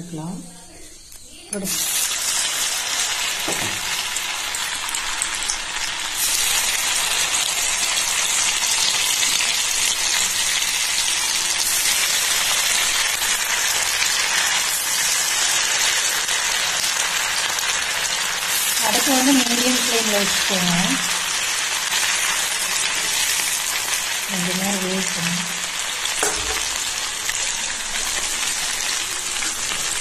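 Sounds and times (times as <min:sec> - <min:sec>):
chicken deep-frying in oil: 0:01.5 - 0:30.0.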